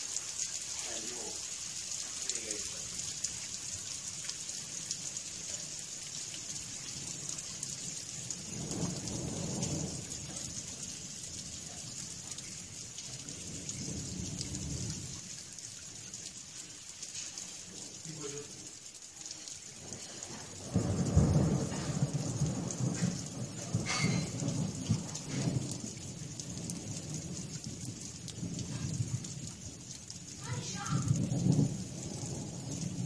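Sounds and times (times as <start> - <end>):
steady rain hissing: 0.0 - 33.0
low rolls of thunder: 6.9 - 12.4, 13.0 - 15.2, 19.8 - 29.8, 31.0 - 33.0.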